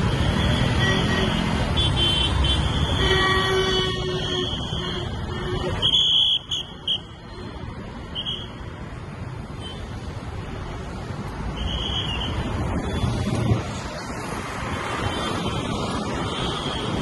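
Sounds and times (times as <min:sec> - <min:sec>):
road traffic rumble: 0:00.0 - 0:17.0
vehicle horn toots: 0:00.8 - 0:07.0.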